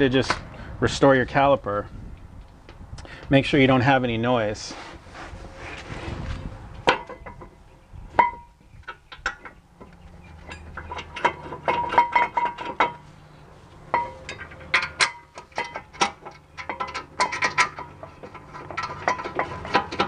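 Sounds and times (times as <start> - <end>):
brake pads clinking on metal: 6.8 - 7.6, 8.2 - 20.0.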